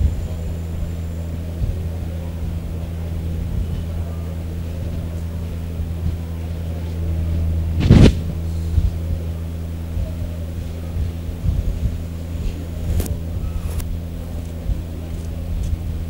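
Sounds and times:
steady low hum: 0.0 - 16.0
loud short thump: 7.8 - 8.4.

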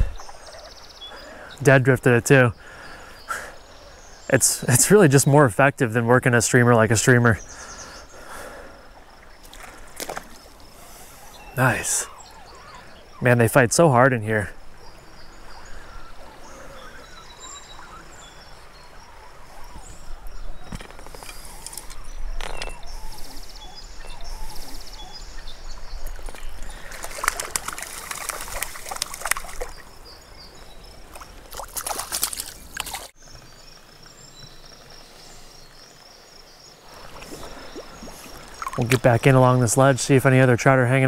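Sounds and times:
steady stream water: 0.0 - 41.0
water splashing from thrashing fish: 26.2 - 29.8, 31.1 - 33.1.

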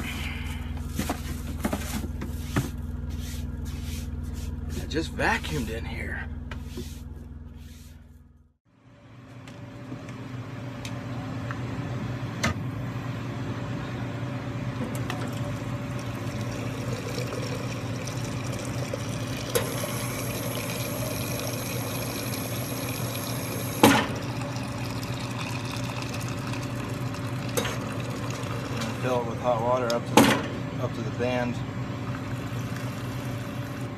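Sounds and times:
water pouring into a jug: 15.3 - 29.5.

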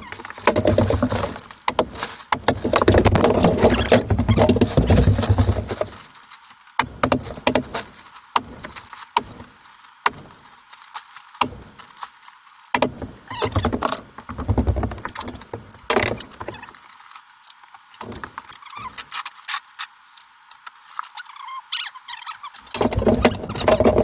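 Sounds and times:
rumbling and clatter: 2.5 - 6.0.

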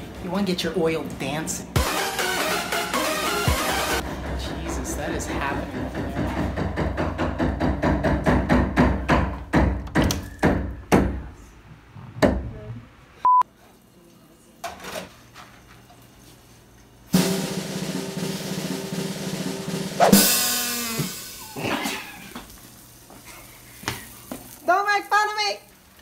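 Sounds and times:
drum roll: 1.8 - 9.1, 17.1 - 22.4
butter sizzling in a frying pan: 22.2 - 26.0.

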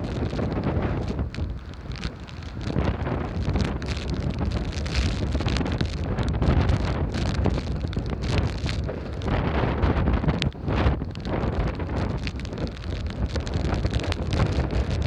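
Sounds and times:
storm wind buffeting microphone: 0.0 - 15.0.

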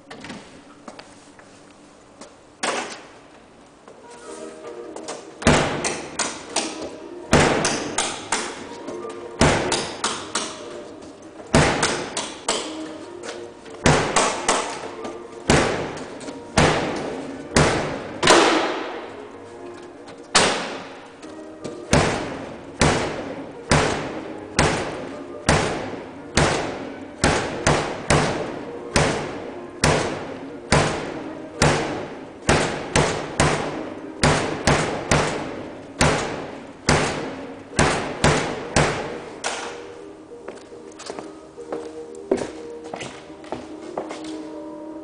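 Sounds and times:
bangs on sheet-metal refrigerator: 7.3 - 8.6, 9.4 - 10.3, 11.5 - 12.6, 13.8 - 14.8, 15.5 - 18.8, 21.9 - 39.7.

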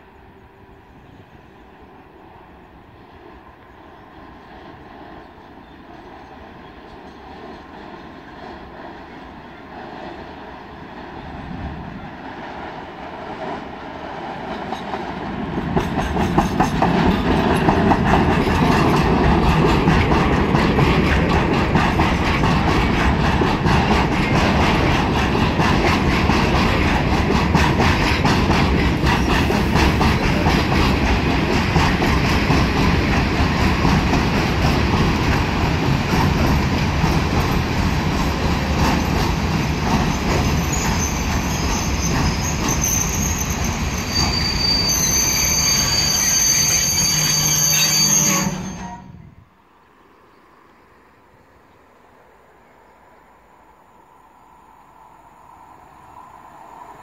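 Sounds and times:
electric locomotive passing: 0.0 - 57.0.

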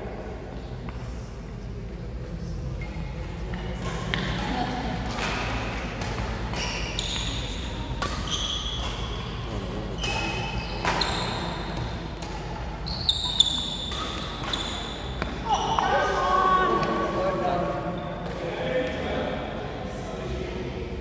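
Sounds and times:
racket hitting shuttlecock: 3.8 - 9.1
shoes squeaking on court: 6.5 - 11.8, 12.8 - 15.7.

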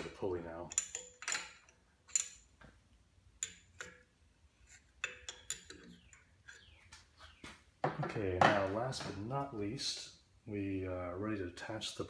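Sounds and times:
wrench clinking on bolts: 0.7 - 2.6, 3.4 - 6.7.

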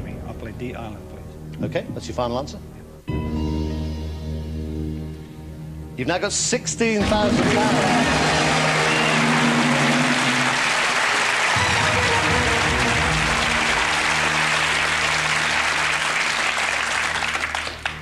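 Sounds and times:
audience applauding: 7.0 - 18.0
sustained music cue: 7.0 - 18.0.

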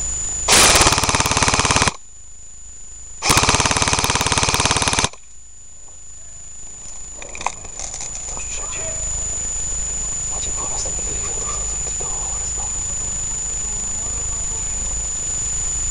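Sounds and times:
airsoft rifle firing full-auto: 0.5 - 2.0, 3.2 - 5.2.

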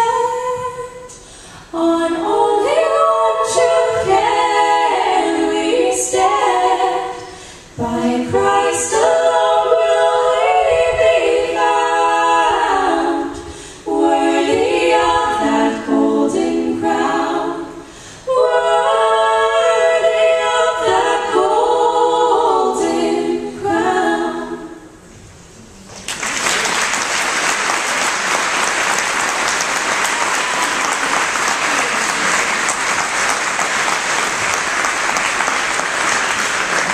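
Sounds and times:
women singing a hymn in harmony: 0.0 - 25.0
audience applauding: 25.9 - 36.9.

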